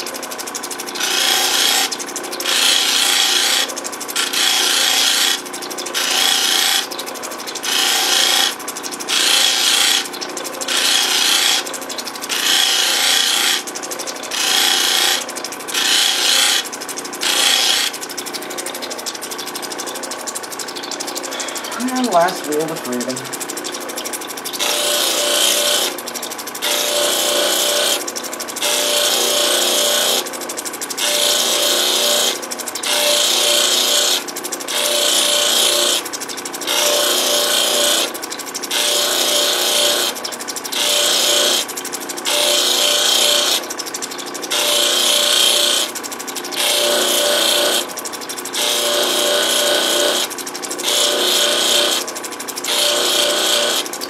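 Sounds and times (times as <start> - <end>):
grinding machine running: 0.0 - 54.0
stone rubbing on grinding wheel: 0.0 - 54.0.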